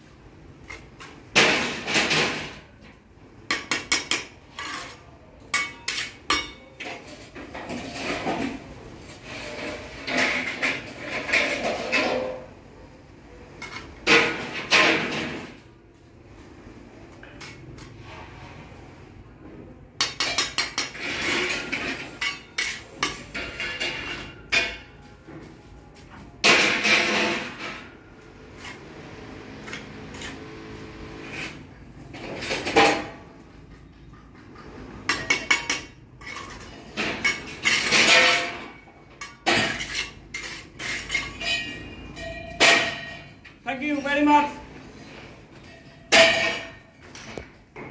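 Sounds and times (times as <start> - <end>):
trowel scraping mortar: 28.5 - 31.7, 39.6 - 41.4.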